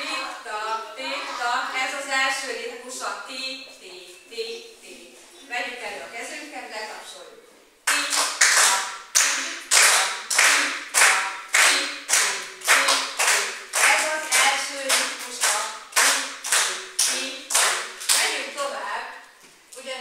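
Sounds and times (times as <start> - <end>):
hand claps in steady beat: 7.9 - 18.4
person chanting syllables: 7.9 - 18.7.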